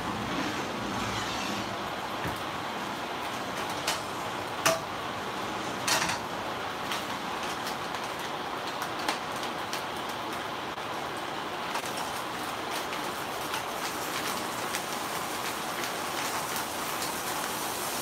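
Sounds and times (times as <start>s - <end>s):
shrimp sizzling in a frying pan: 11.8s - 18.0s.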